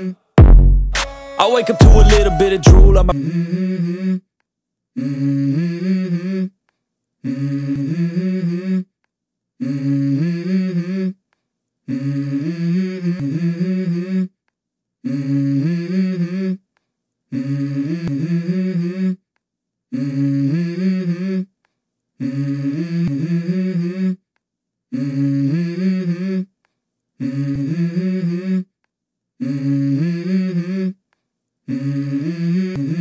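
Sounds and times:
person humming: 1.0 - 4.0.

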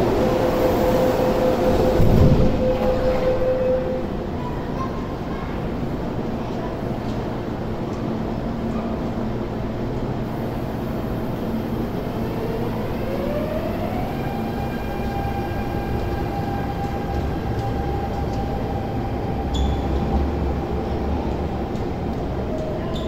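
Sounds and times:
train rumbling: 0.0 - 23.0
short high squeak: 19.5 - 19.8.

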